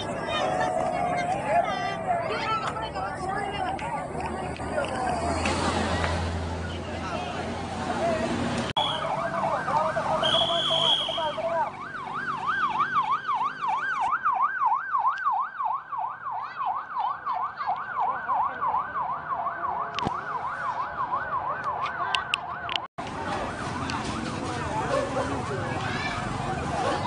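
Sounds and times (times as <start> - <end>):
second siren or horn tone: 8.8 - 14.0
siren in fast yelp: 8.8 - 22.8.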